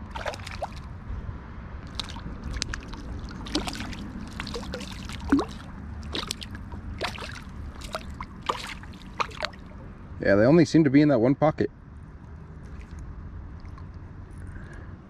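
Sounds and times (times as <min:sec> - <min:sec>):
river water flowing: 0:00.0 - 0:01.0, 0:01.8 - 0:10.2
water splashing and trickling: 0:00.0 - 0:01.0, 0:01.8 - 0:10.2, 0:12.1 - 0:14.6.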